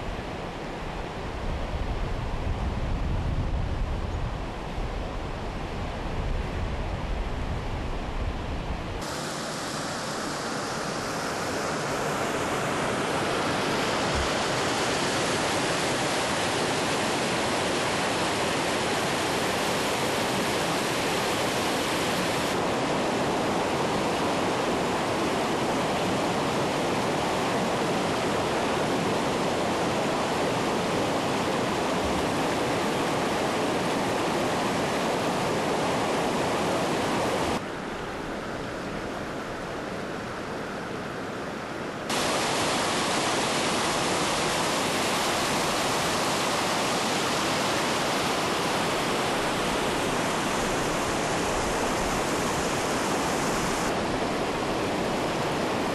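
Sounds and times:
floodwater rushing: 9.0s - 37.6s, 42.1s - 55.9s.

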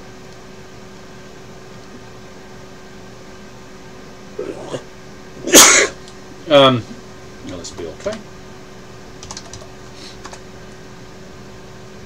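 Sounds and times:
low room hum: 0.0s - 12.0s
man coughing: 4.4s - 4.8s, 5.4s - 6.0s.

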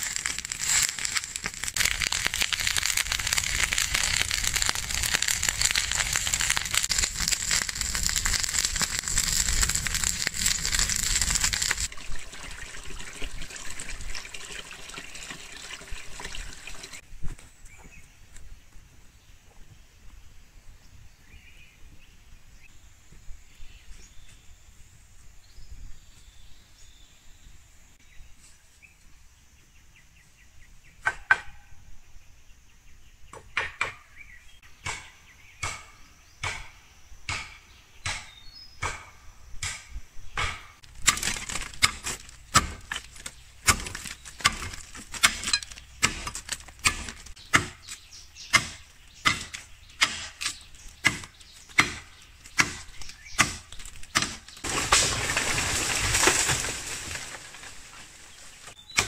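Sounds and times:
faint outdoor background: 0.0s - 59.0s
machete chopping bamboo: 34.8s - 55.0s.

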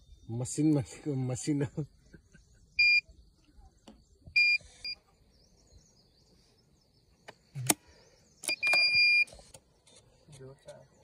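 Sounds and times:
machine beeping: 8.4s - 9.3s.

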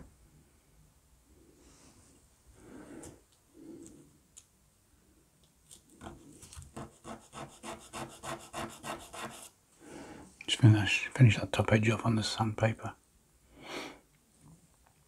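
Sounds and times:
wood rubbed on sandpaper: 6.8s - 9.5s.

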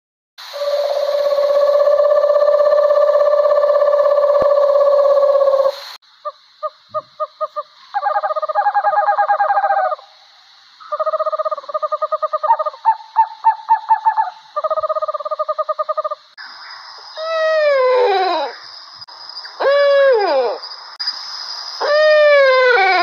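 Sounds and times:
owl hooting: 0.5s - 10.1s, 19.6s - 20.6s, 21.8s - 23.0s.

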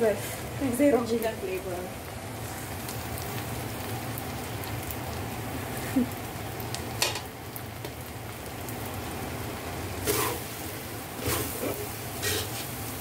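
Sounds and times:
rice sizzling in a wok: 0.0s - 13.0s
metal spatula scraping a pan: 10.0s - 10.5s, 11.2s - 12.8s.

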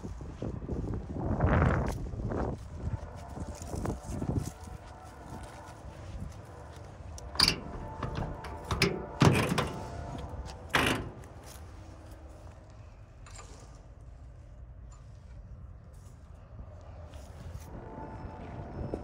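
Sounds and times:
metal door clunks and knocks: 7.3s - 11.4s.

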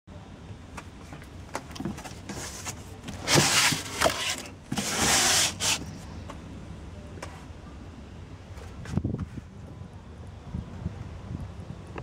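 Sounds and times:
cardboard and plastic scrapes: 1.8s - 5.9s.

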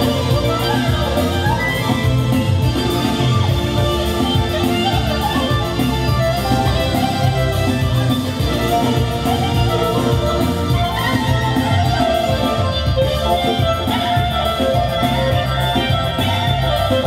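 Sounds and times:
bass drum beat: 0.0s - 17.0s
clarinet melody: 0.0s - 17.0s.

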